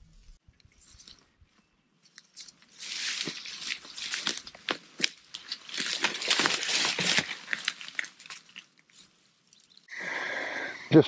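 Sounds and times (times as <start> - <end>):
twigs snapping: 2.0 - 9.8
footsteps crunching dry leaves: 2.4 - 9.2.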